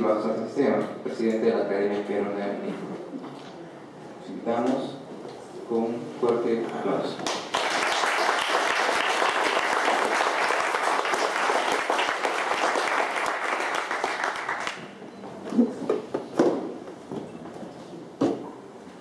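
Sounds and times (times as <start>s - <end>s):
audience applause: 7.2s - 14.9s.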